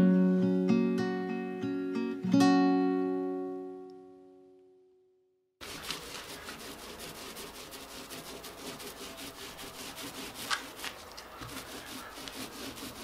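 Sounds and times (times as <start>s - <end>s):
paint roller wet rubbing: 5.6s - 13.0s.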